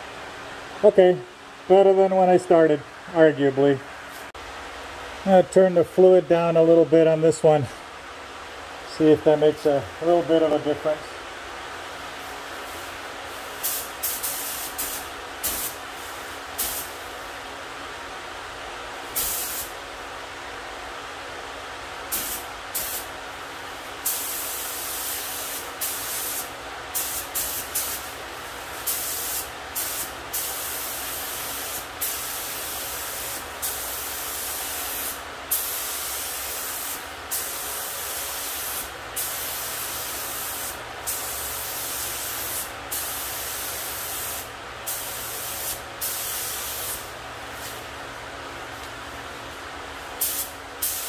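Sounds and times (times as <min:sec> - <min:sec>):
spray gun hissing: 0:12.2 - 0:17.3, 0:19.1 - 0:19.7, 0:22.1 - 0:23.1, 0:23.7 - 0:47.8, 0:50.2 - 0:51.0.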